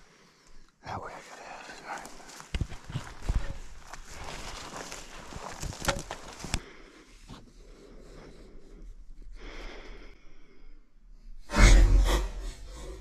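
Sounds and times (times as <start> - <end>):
heavy breath: 6.3 - 11.0.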